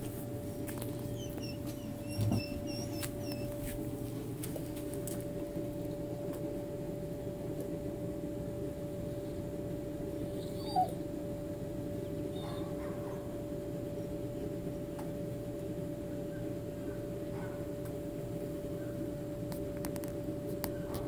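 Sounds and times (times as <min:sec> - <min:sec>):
steady hum: 0:00.0 - 0:21.0
dog whimpering: 0:00.5 - 0:03.8, 0:10.3 - 0:11.0, 0:12.3 - 0:13.3.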